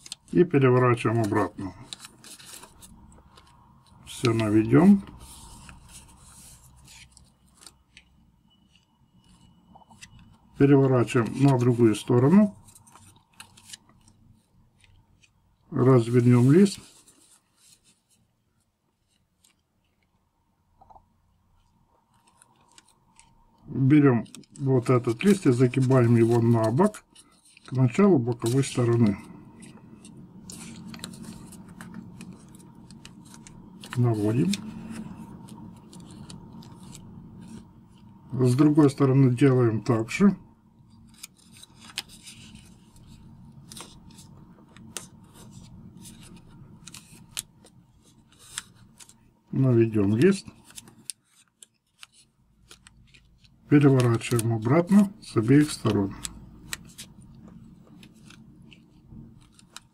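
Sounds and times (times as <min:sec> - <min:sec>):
paper rustling and tapping: 0:24.2 - 0:38.0, 0:41.1 - 0:49.2, 0:50.0 - 0:59.9.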